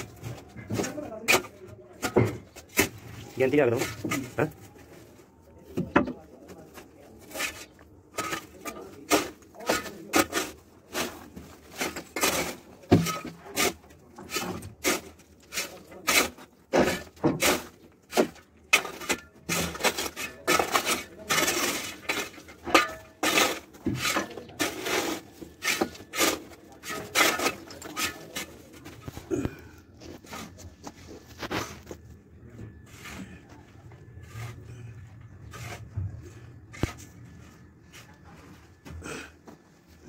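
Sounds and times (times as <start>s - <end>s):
steel bar chipping concrete: 11.8s - 28.6s.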